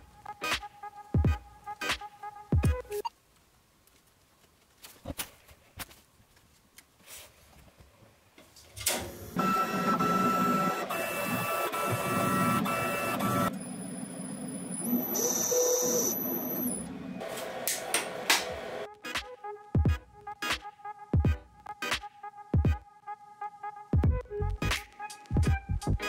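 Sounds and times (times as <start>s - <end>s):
lathe motors whining: 9.3s - 18.8s.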